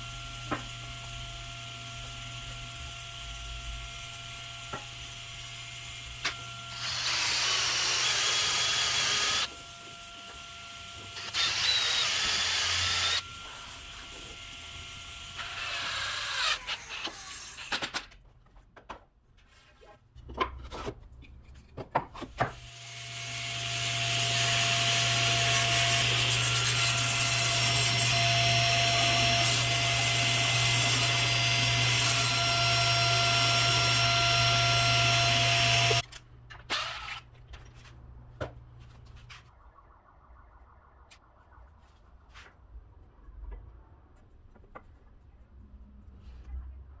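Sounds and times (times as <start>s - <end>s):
table saw cutting wood: 0.1s - 17.7s, 22.4s - 36.0s.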